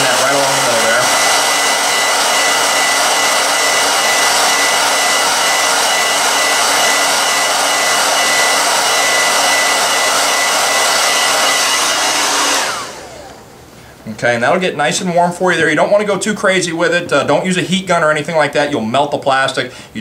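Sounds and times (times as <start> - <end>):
hair dryer running: 0.0 - 13.7.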